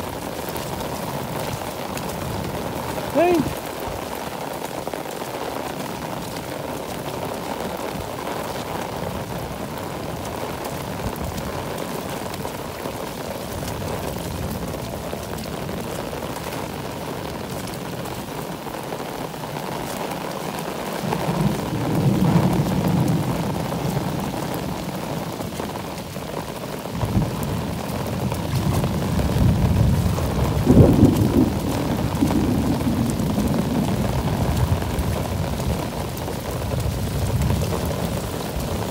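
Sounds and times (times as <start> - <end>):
heavy rain pouring: 0.0 - 38.9
thunder rumbling: 21.0 - 25.6, 26.4 - 38.9.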